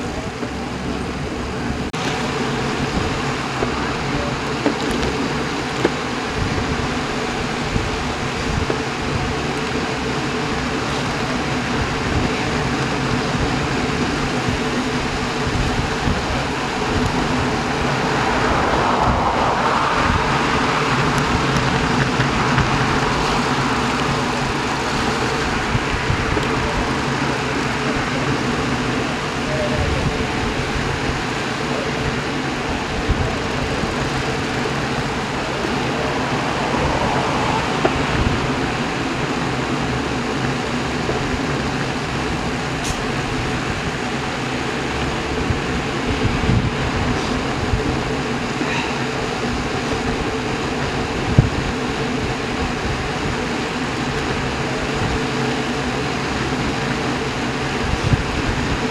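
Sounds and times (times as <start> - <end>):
bike tyres on asphalt: 0.0 - 58.9
wind rushing: 1.3 - 44.1, 45.0 - 53.4.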